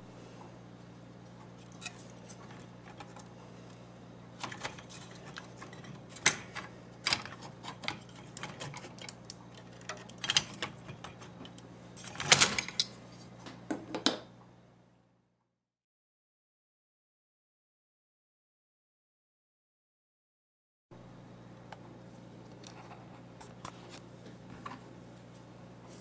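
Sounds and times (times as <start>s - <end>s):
steady low hum: 0.0s - 13.7s.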